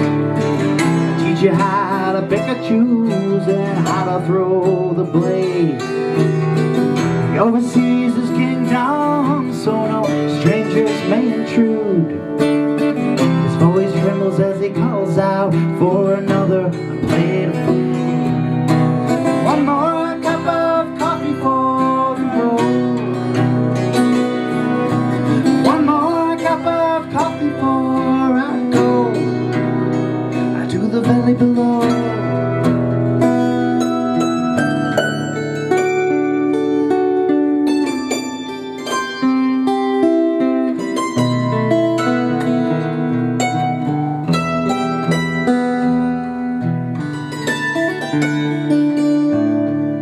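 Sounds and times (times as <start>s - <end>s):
man singing: 0.0s - 33.4s
keyboard: 0.0s - 50.0s
strummed acoustic guitar: 0.0s - 50.0s.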